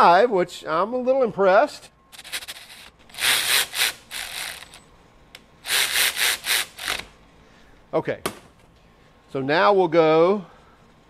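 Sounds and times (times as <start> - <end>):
ratchet grinding metal on metal: 2.2 - 4.8, 5.6 - 7.1.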